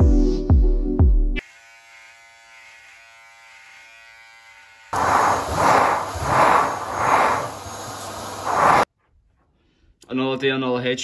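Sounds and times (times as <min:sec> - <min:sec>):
electric shaver buzzing: 0:01.4 - 0:07.2
vacuum cleaner on carpet: 0:05.0 - 0:08.8.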